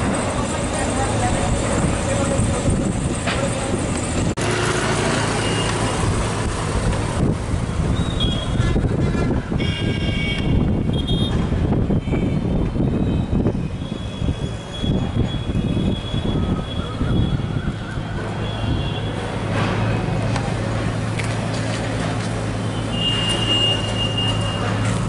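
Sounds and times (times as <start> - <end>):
city traffic engines: 0.0 - 25.0
vehicle horn toots: 8.0 - 8.8, 9.6 - 12.4, 22.7 - 24.7.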